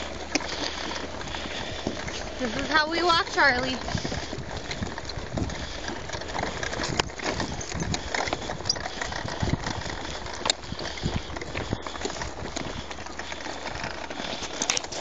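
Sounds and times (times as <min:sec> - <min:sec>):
wagon wheels rolling on asphalt: 0:00.0 - 0:15.0.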